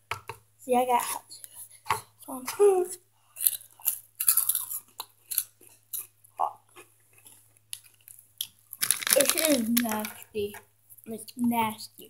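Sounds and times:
crunchy snack chewing: 3.4s - 6.1s, 8.7s - 10.2s.

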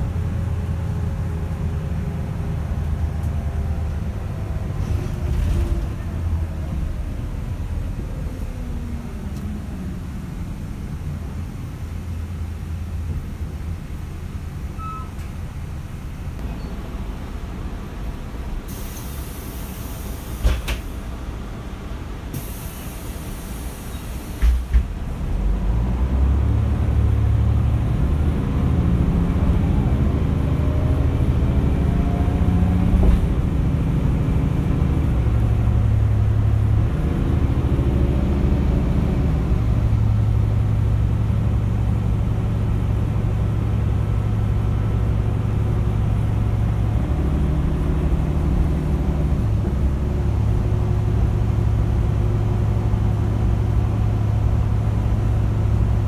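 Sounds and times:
bus diesel engine: 0.0s - 56.0s
air hissing: 18.7s - 20.8s, 22.3s - 24.6s.

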